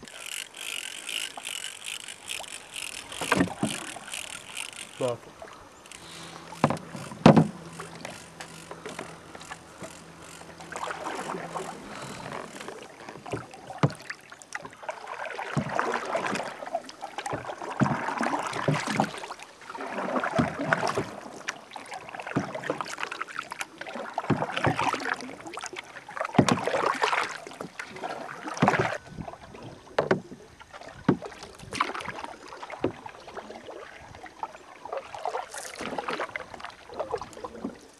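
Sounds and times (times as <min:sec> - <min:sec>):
paddle splashing in water: 0:00.0 - 0:37.9
sharp knocks: 0:06.6 - 0:07.6.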